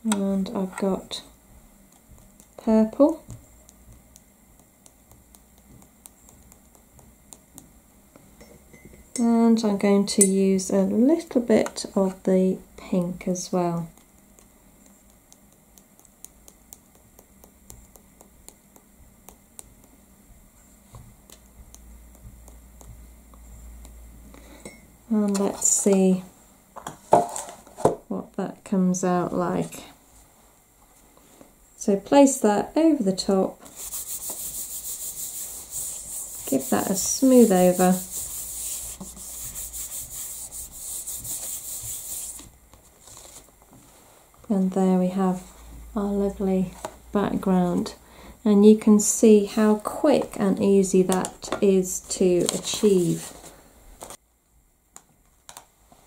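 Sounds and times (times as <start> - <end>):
brush tapping on a plate: 1.9 - 9.3, 13.8 - 20.0
hand rubbing over card: 33.6 - 44.0.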